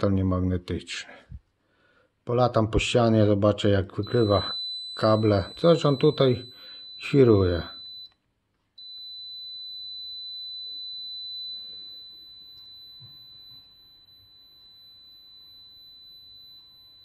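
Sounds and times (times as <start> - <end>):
continuous high-pitched beep: 3.2 - 8.2, 8.8 - 17.0.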